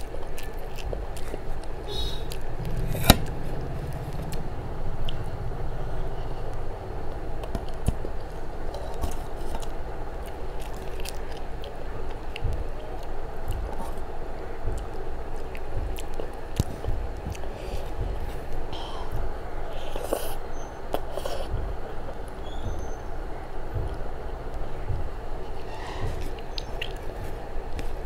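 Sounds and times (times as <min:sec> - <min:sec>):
fingers clicking and squishing rice: 0:00.0 - 0:02.6
close chewing: 0:00.0 - 0:22.9, 0:23.8 - 0:28.0.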